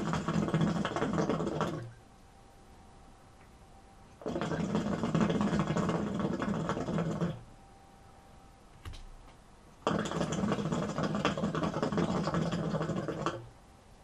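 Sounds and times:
hookah water bubbling: 0.0s - 2.0s, 4.2s - 7.5s, 9.8s - 13.5s.

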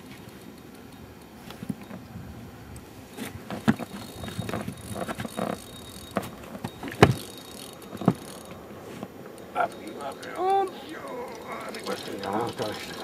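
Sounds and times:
faint high whine: 0.0s - 13.0s
knocks and clicks on boat: 3.2s - 10.4s.

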